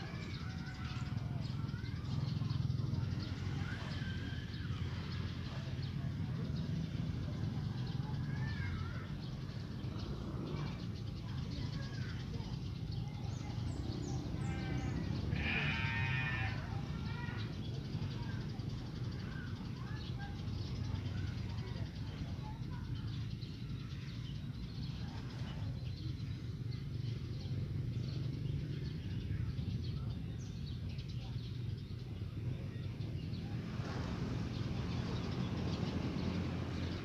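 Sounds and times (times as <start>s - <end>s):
goat bleating: 15.3s - 16.7s.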